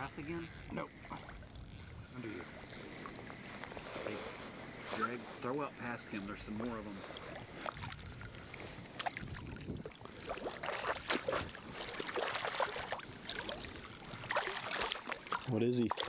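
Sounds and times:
fish splashing in water: 0:07.1 - 0:16.0.

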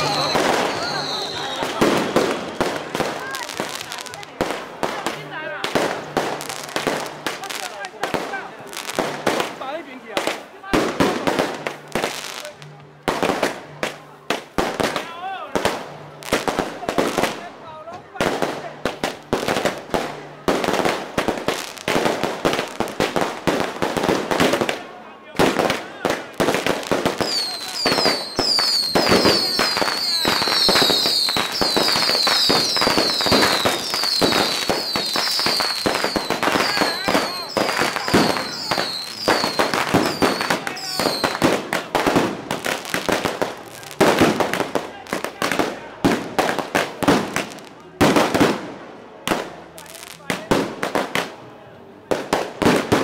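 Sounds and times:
falling firework whistles: 0:00.0 - 0:02.8, 0:27.2 - 0:41.4
firecrackers banging: 0:00.0 - 0:53.0.

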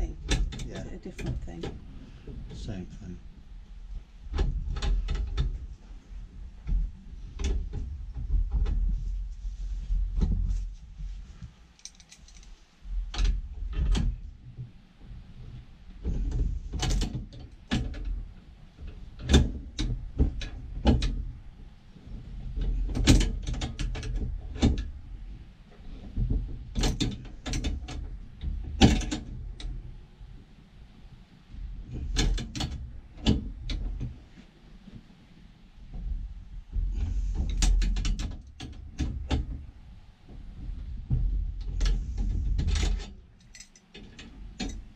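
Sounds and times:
metallic clicks of tools: 0:11.8 - 0:12.6, 0:42.8 - 0:44.8.

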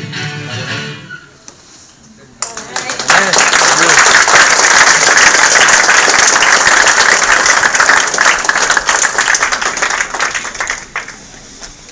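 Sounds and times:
audience applause: 0:02.4 - 0:11.4.

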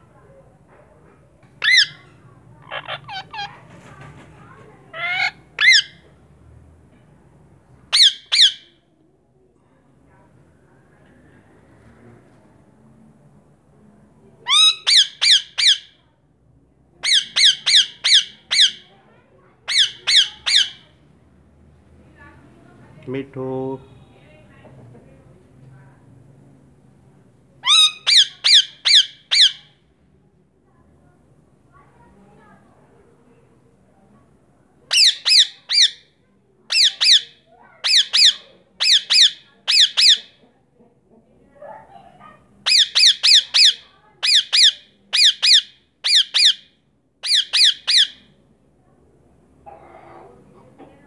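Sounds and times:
parakeet squawking: 0:01.6 - 0:03.6, 0:04.9 - 0:06.0, 0:07.9 - 0:08.7, 0:14.5 - 0:15.9, 0:17.0 - 0:18.8, 0:19.7 - 0:20.9, 0:27.6 - 0:29.7, 0:34.9 - 0:36.1, 0:36.7 - 0:40.3, 0:42.6 - 0:48.3.

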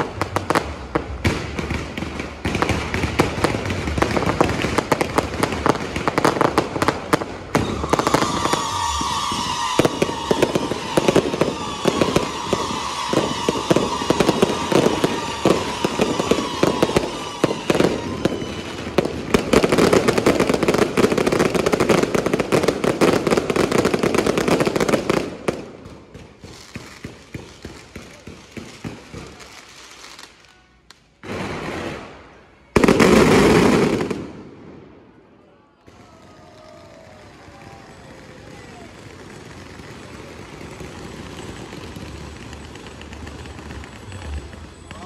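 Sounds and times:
fireworks crackling and popping: 0:00.0 - 0:35.1, 0:35.8 - 0:45.0
falling firework whistles: 0:04.3 - 0:25.2.

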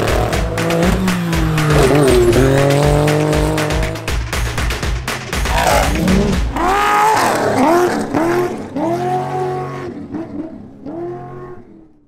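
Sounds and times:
deep engine rumble: 0:00.0 - 0:12.0
race truck engines revving: 0:00.0 - 0:12.0.

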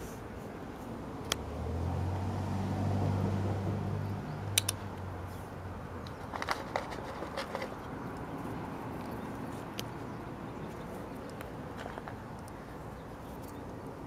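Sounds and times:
sharp double click: 0:04.5 - 0:04.8.

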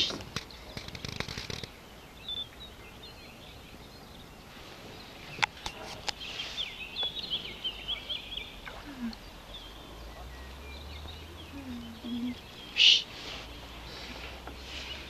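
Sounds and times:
sharp clicks: 0:00.0 - 0:01.8
birds chirping and singing: 0:00.0 - 0:15.0.

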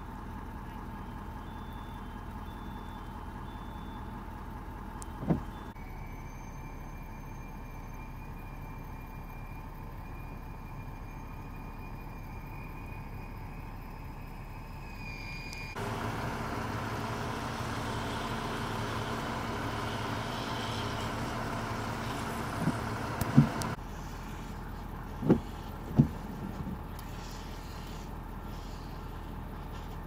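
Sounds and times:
trucks idling: 0:00.0 - 0:15.0, 0:15.7 - 0:30.0
dull low thuds: 0:05.2 - 0:05.7, 0:22.6 - 0:23.8, 0:25.1 - 0:26.9.

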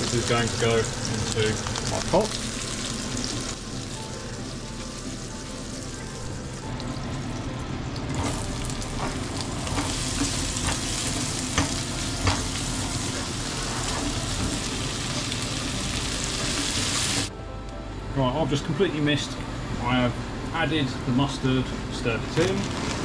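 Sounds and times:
onion sizzling in a frying pan: 0:00.0 - 0:06.8, 0:08.1 - 0:17.3.

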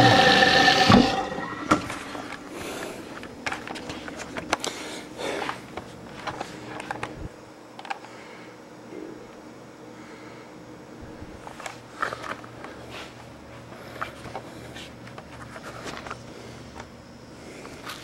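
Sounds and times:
tap water pouring: 0:00.0 - 0:02.0
garbage disposal running: 0:00.0 - 0:04.4.

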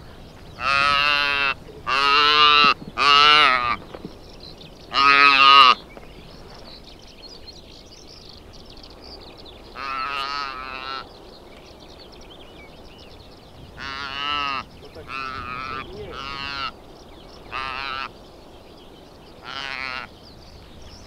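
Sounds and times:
young antelope bleating: 0:00.6 - 0:03.8, 0:04.9 - 0:05.8, 0:09.8 - 0:11.0, 0:13.7 - 0:16.8, 0:17.5 - 0:18.1, 0:19.4 - 0:20.1.

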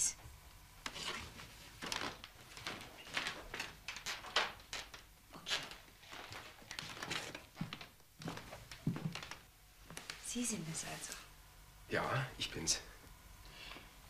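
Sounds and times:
soft footsteps: 0:00.8 - 0:11.2
knocks and rustles: 0:00.9 - 0:10.2.

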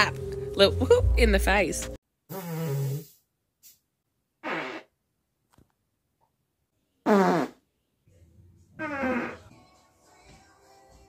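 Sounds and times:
buzzing farts: 0:02.3 - 0:03.2, 0:04.4 - 0:04.9, 0:07.0 - 0:07.6, 0:08.8 - 0:09.5.

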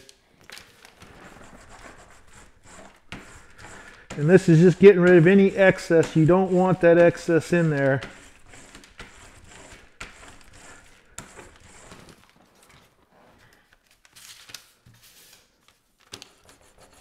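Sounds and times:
plastic sheet crinkling: 0:00.0 - 0:06.8.

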